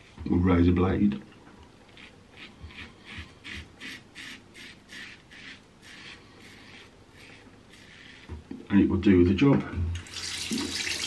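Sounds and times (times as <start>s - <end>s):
razor scraping stubble: 1.9s - 8.3s.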